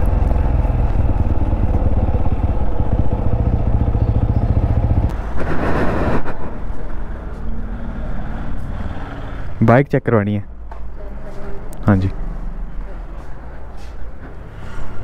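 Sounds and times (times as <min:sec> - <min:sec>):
motorcycle engine idling: 0:00.0 - 0:05.1.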